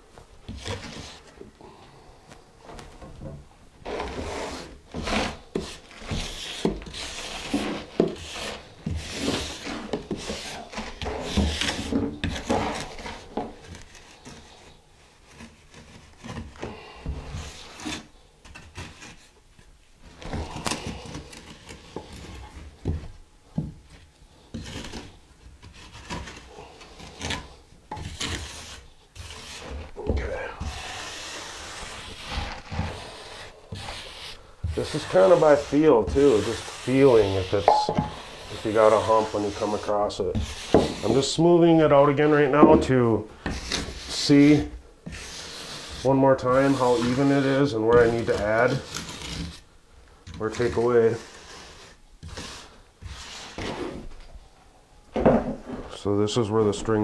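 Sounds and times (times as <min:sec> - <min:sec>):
trowel scraping mortar: 0:03.8 - 0:16.6, 0:24.5 - 0:29.9, 0:30.6 - 0:49.6, 0:50.4 - 0:54.0.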